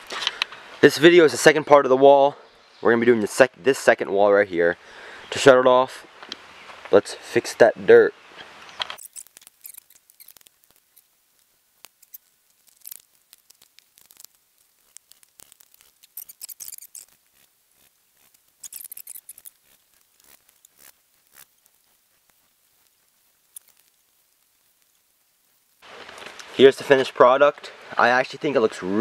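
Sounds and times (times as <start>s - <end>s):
gloved hands scraping dirt: 8.4s - 26.7s
stones clicking: 8.8s - 22.4s.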